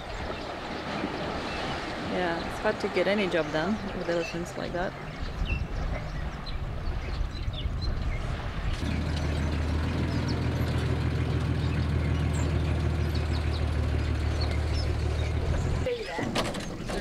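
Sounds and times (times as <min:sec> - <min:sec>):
truck engine running: 0:08.8 - 0:16.0.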